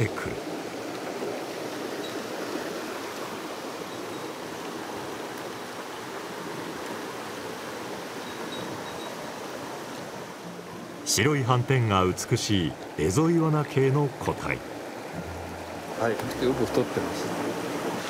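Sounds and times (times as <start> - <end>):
stream water rushing: 0.0 - 18.0.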